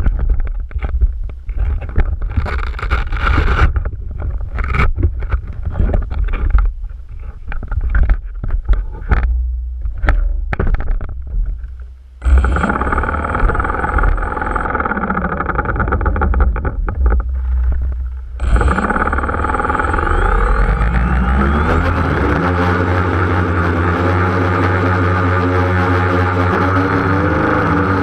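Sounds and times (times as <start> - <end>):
drone propeller motors whining: 9.1 - 28.0.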